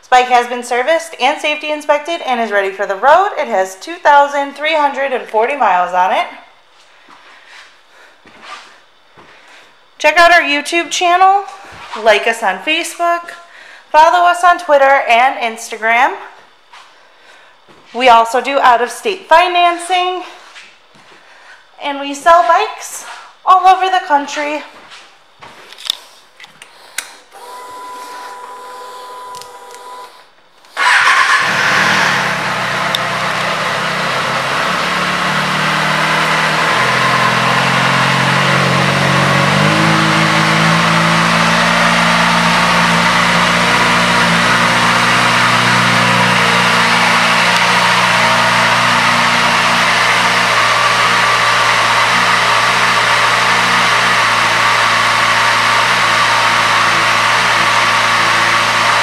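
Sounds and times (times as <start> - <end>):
motorcycle engine starting and idling: 30.8 - 59.0.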